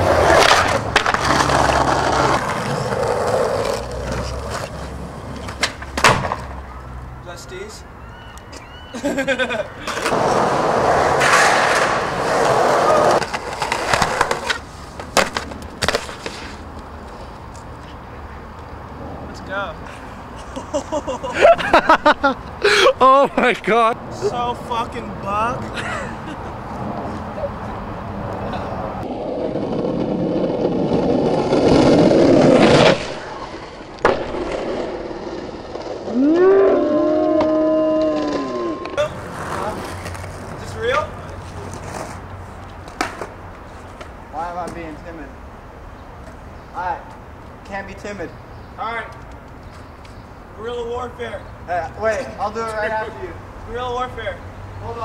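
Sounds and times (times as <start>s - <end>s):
board and rider slamming onto concrete: 0.0s - 6.6s, 9.9s - 16.6s, 29.6s - 36.2s, 37.2s - 41.1s
skateboard clack: 0.0s - 6.6s, 9.9s - 16.6s, 29.0s - 36.0s, 37.3s - 42.2s, 42.8s - 43.4s
skateboard wheels rolling on concrete: 0.0s - 55.0s
skateboard clacks: 0.2s - 6.6s, 42.8s - 43.4s
person yelling: 36.2s - 39.1s.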